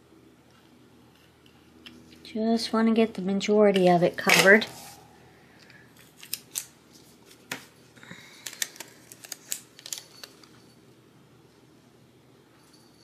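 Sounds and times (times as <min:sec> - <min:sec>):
sticker being peeled: 0:06.0 - 0:07.6, 0:08.3 - 0:10.5.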